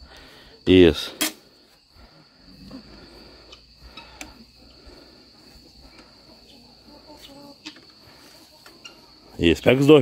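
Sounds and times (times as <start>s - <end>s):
high-pitched insect drone: 0.0s - 10.0s
rustles: 1.0s - 10.0s.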